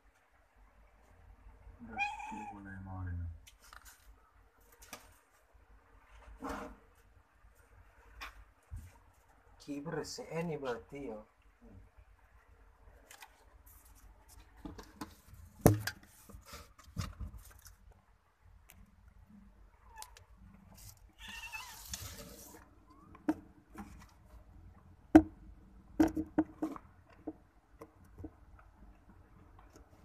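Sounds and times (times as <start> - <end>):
kitten crying: 1.8 - 2.6, 21.2 - 21.9
rustling: 3.4 - 9.5, 12.9 - 24.5.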